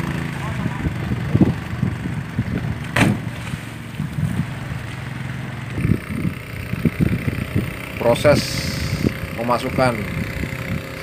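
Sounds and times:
small engine idling: 0.0 - 11.0
wind thumps on microphone: 0.6 - 4.6, 5.8 - 7.8
sharp knock: 3.0 - 3.3.

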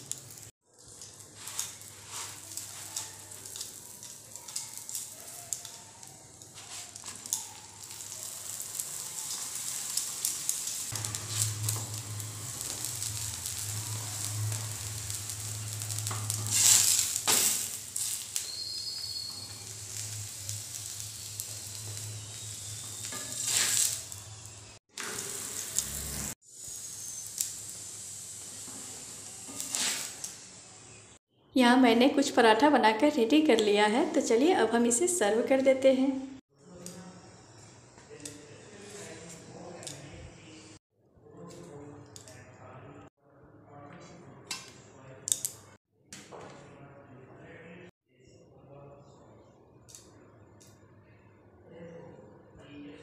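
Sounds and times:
paratha sizzling in ghee: 0.0 - 31.2.

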